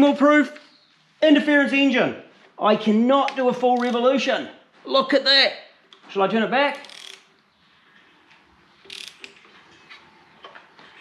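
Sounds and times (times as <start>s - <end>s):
socket ratchet clicking: 6.8s - 7.3s, 8.8s - 9.4s.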